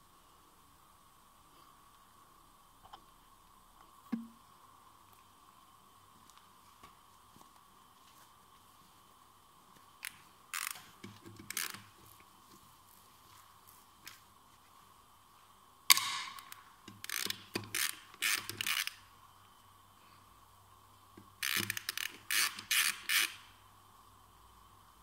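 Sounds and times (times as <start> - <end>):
socket ratchet clicking: 10.0 - 11.9, 15.9 - 19.0, 21.4 - 23.4.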